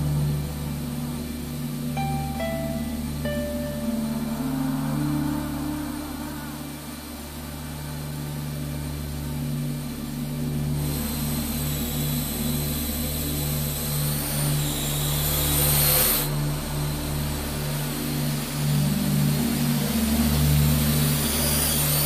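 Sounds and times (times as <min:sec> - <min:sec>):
high-pitched whine: 0:00.0 - 0:22.0
quadcopter propellers whirring: 0:10.8 - 0:17.3.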